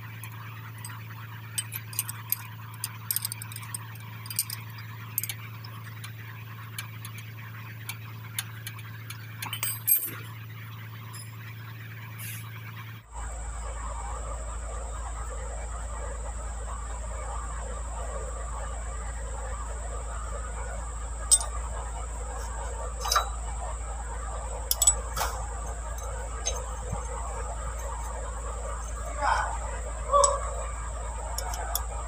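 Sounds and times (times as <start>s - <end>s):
steady low hum: 0.0s - 32.0s
thin high whine: 0.0s - 32.0s
metal clicks and clinks: 0.2s - 10.3s, 21.3s - 21.6s, 22.4s - 23.5s, 24.7s - 29.5s, 31.3s - 31.9s.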